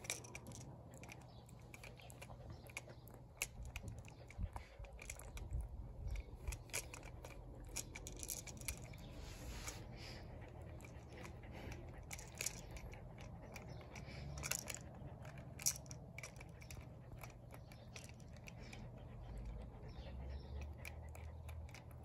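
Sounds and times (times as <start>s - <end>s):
puppy teeth crunching plastic toy: 0.0s - 20.0s, 20.6s - 22.0s.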